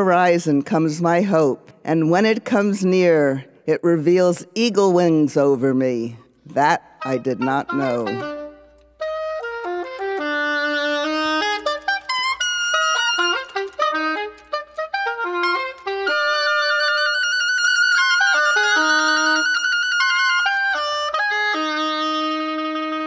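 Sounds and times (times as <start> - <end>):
solo oboe melody: 7.0 - 23.0.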